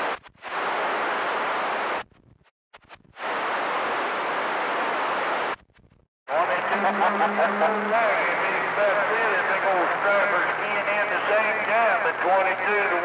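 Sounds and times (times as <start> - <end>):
radio squelch hiss: 0.0 - 2.0, 6.3 - 13.0.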